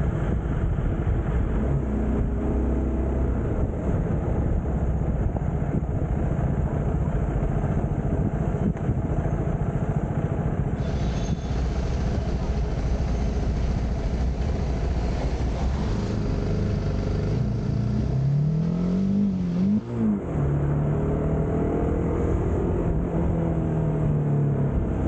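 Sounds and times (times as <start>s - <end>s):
wind and road noise: 0.0s - 25.0s
motorcycle engine running: 3.4s - 18.2s.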